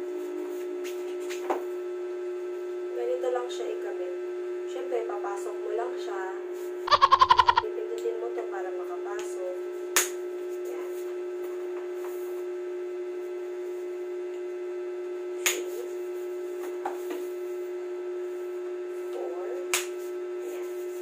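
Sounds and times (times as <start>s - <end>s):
handling ticks: 6.9s - 7.6s.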